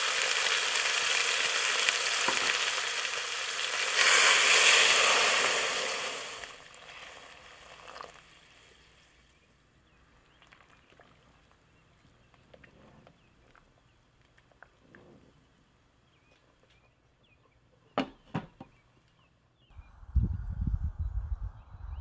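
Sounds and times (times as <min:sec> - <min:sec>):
meat sizzling in a pot: 0:00.0 - 0:09.4.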